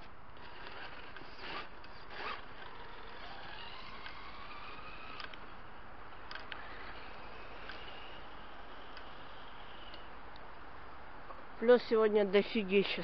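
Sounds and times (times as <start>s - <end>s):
toy truck motor whining: 0.4s - 5.4s, 6.3s - 10.1s.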